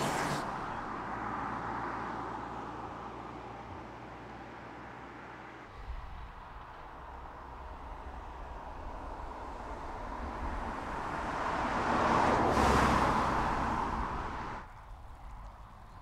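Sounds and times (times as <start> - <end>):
car driving past: 0.0 - 2.6, 8.2 - 14.6.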